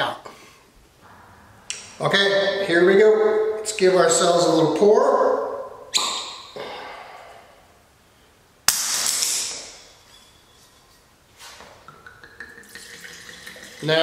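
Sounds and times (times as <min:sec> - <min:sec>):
cork popping from bottle: 0:05.9 - 0:06.6
wine pouring into glass: 0:12.2 - 0:14.0.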